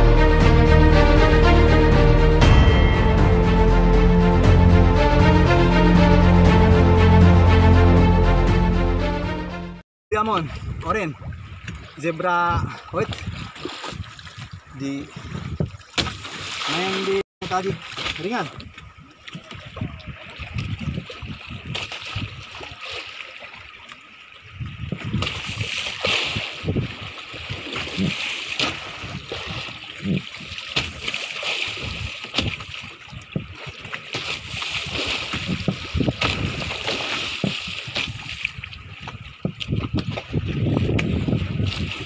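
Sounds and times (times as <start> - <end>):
water slapping against boat hull: 10.2 - 14.6, 15.2 - 24.0, 24.6 - 42.0.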